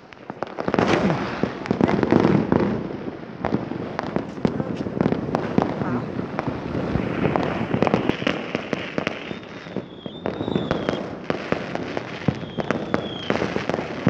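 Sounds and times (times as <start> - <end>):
fireworks bangs and crackling: 0.0 - 14.0
high firework whistle: 6.8 - 14.0.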